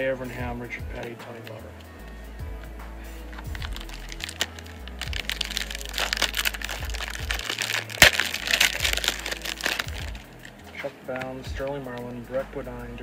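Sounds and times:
foil wrapper crinkling: 3.3s - 10.5s
foil wrapper sharp crack: 3.4s - 10.5s.

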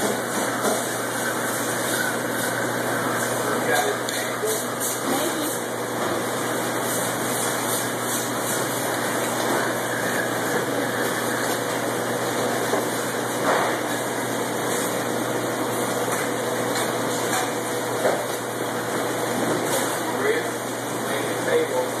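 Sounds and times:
machinery noise: 0.0s - 14.9s.

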